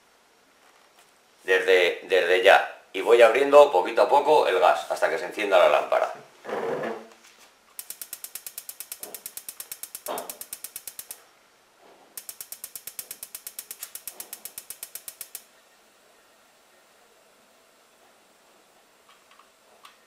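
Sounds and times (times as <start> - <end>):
spark igniter clicking: 7.8 - 11.2, 12.2 - 15.5.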